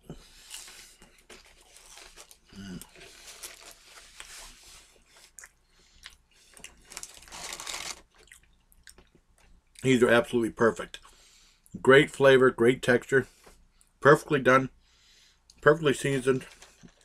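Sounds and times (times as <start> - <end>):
chewing crunchy food: 0.3 - 9.8.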